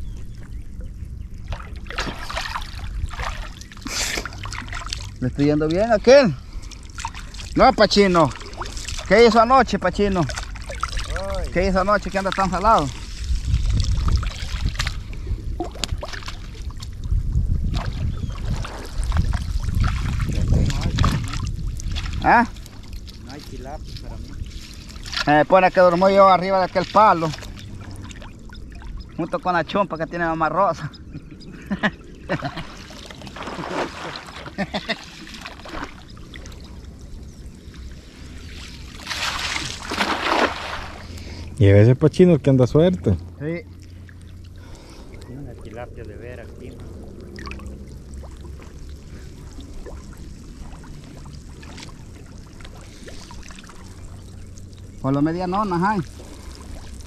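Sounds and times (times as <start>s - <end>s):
low steady rumble: 0.0s - 57.0s
water splashing and pouring: 1.4s - 29.2s, 32.3s - 37.0s, 37.6s - 41.4s, 44.0s - 57.0s
uneven low rumble: 40.9s - 55.0s.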